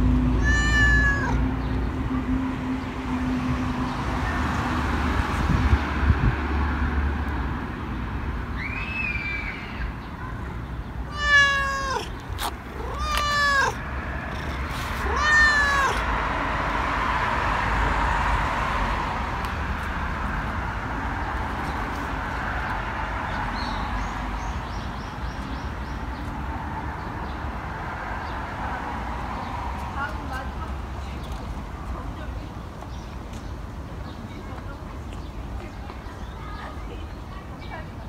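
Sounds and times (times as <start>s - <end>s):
cat meowing: 0.4s - 1.4s, 11.1s - 16.1s.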